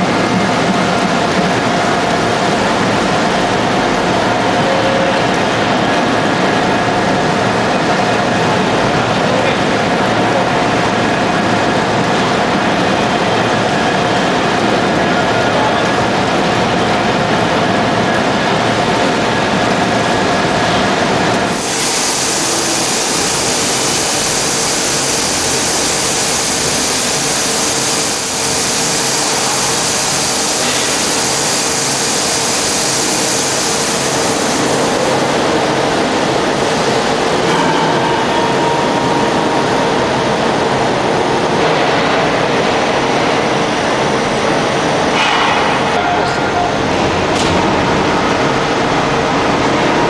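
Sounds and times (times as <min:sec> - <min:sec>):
hydraulic press humming: 0:00.0 - 0:50.0
bright hiss: 0:21.5 - 0:35.4.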